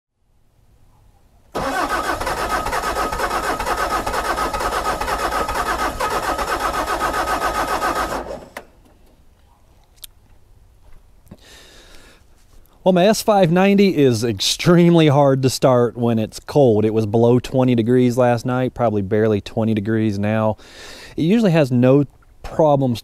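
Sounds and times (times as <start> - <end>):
diesel engine cranking: 1.6 - 8.9.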